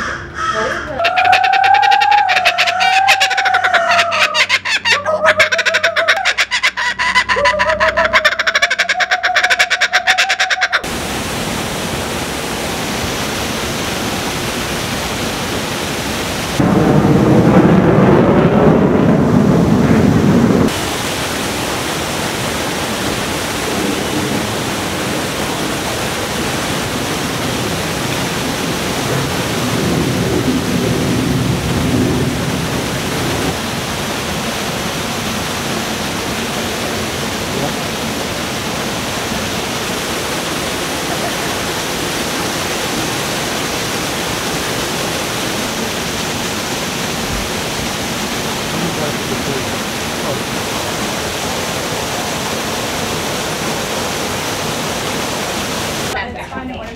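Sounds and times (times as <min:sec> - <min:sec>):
loud rushing noise: 0:16.2 - 0:52.5.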